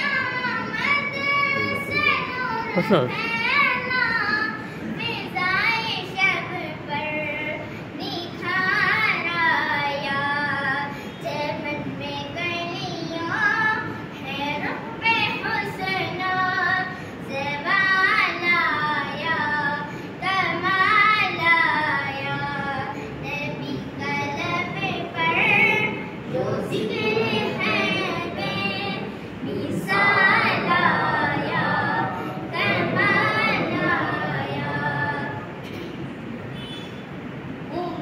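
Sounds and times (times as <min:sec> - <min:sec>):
person singing unaccompanied: 0:13.3 - 0:35.5.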